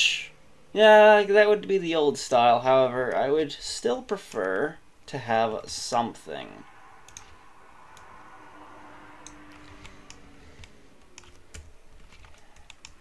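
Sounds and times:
faint room background: 0:00.0 - 0:13.0
keyboard keys clicking: 0:09.2 - 0:13.0.

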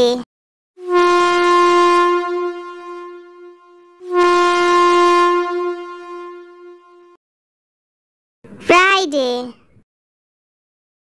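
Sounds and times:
train whistle blasts: 0:00.8 - 0:07.2.

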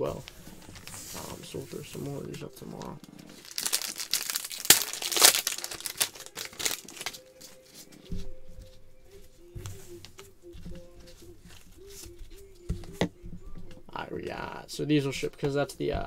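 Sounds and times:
cards being handled: 0:00.2 - 0:08.2, 0:09.6 - 0:13.2
card pack wrapper tearing: 0:03.4 - 0:07.3.

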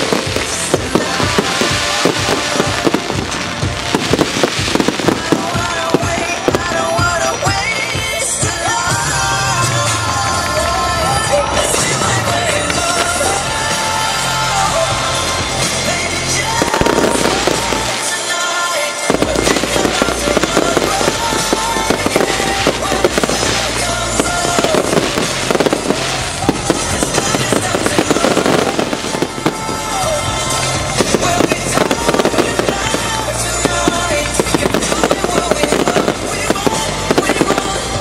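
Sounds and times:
fireworks bursting and crackling: 0:00.0 - 0:38.0
music playing: 0:00.0 - 0:38.0.

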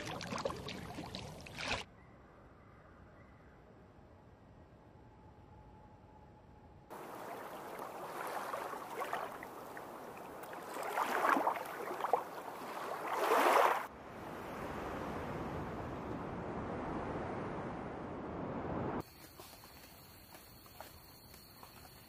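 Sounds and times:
water washing along shoreline: 0:00.0 - 0:01.8, 0:06.9 - 0:16.1
surf rushing: 0:06.9 - 0:19.0.

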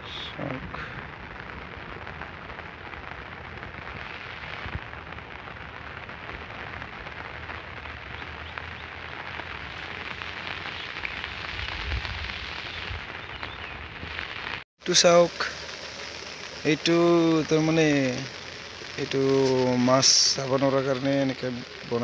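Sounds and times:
steady rain falling: 0:00.0 - 0:22.0.

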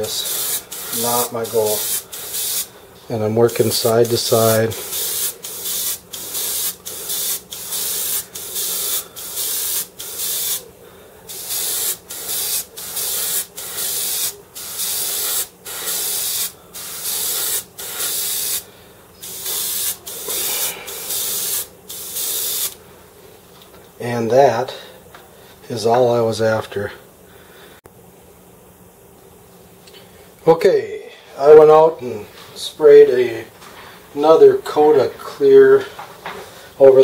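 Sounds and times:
airbrush spraying hiss: 0:00.0 - 0:02.7, 0:03.4 - 0:10.7, 0:11.3 - 0:22.8
faint steady hum: 0:00.0 - 0:37.0.

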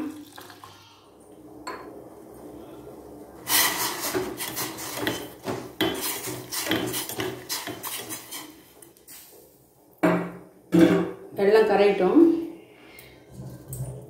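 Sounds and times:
water pouring into a bowl: 0:00.0 - 0:01.0
metal spoon scraping a steel pan: 0:03.5 - 0:08.8.

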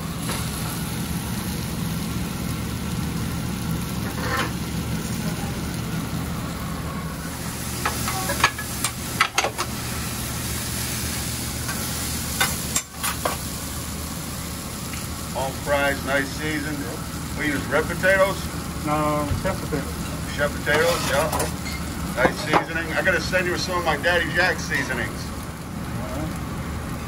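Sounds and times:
omelet sizzling on griddle: 0:00.0 - 0:27.0
metal spatula scraping griddle: 0:04.0 - 0:04.6, 0:20.7 - 0:21.8.

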